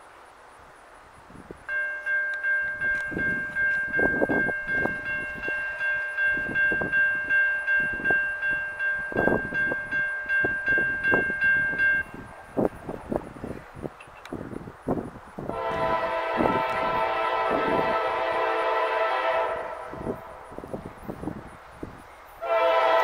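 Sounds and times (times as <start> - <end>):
crossing warning bell ringing: 1.7 - 13.2, 15.5 - 21.5.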